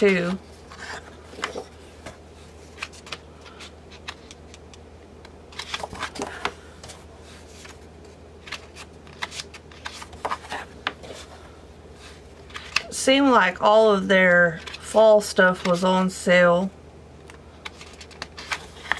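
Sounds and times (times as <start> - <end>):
stiff paper sheets rustling: 0.0 - 4.4, 5.5 - 7.8, 8.4 - 12.9, 17.6 - 18.9.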